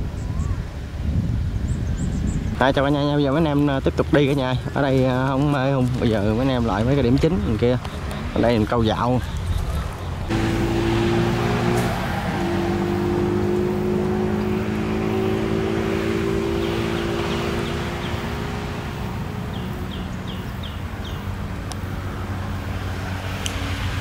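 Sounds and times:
bird chirping: 0:13.5 - 0:21.4.

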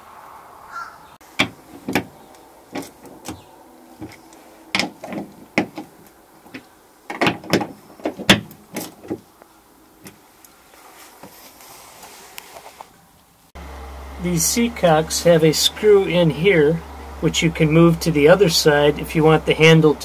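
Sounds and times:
metallic lever clicks and clunks: 0:01.4 - 0:02.2, 0:02.8 - 0:09.2.

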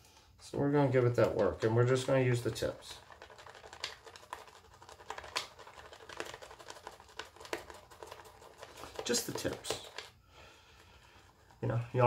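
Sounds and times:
shaving brush lathering soap: 0:00.8 - 0:12.0.

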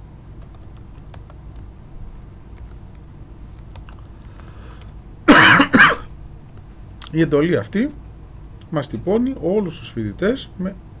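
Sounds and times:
keyboard typing clicks: 0:00.4 - 0:01.7, 0:02.5 - 0:05.0.

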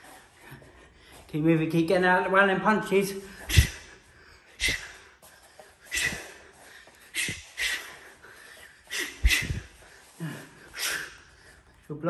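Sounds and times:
sharp exhales through mouth: 0:03.3 - 0:04.0, 0:05.9 - 0:06.4, 0:07.1 - 0:08.1, 0:08.8 - 0:11.4.

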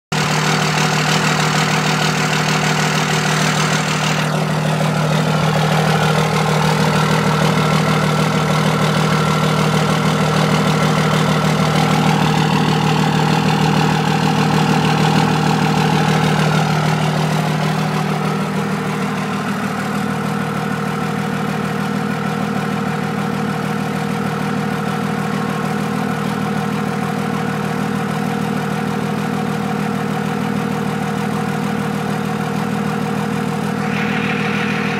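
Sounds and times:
diesel engine idling: 0:00.1 - 0:34.9
hiss: 0:33.8 - 0:34.9.

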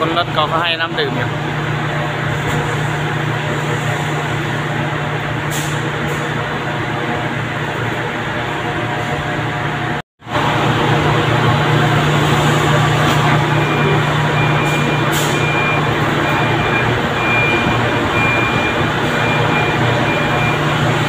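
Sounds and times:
machinery din with low hum: 0:00.0 - 0:21.0
high electronic warning beep: 0:13.2 - 0:21.0.

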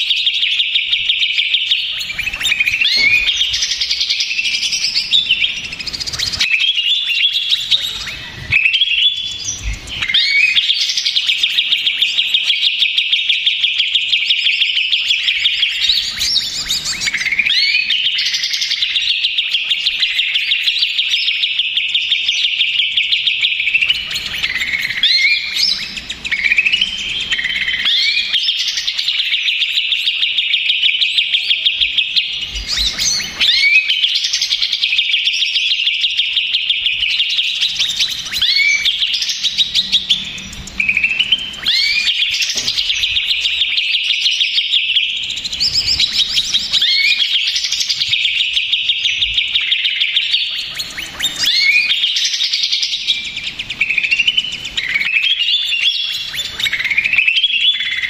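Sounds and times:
bird singing trills and whistles: 0:00.0 - 0:58.0.

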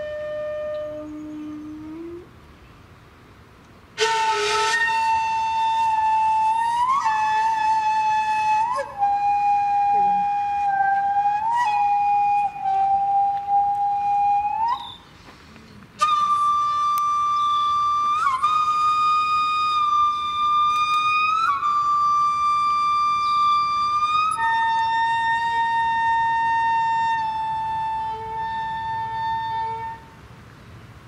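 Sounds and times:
solo flute: 0:00.0 - 0:02.4, 0:04.0 - 0:30.3.

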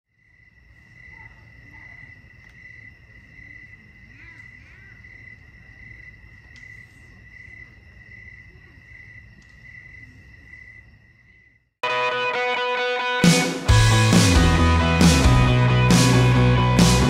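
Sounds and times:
crickets chirping: 0:00.1 - 0:11.8
faint clicks: 0:06.5 - 0:07.0, 0:09.4 - 0:09.6.

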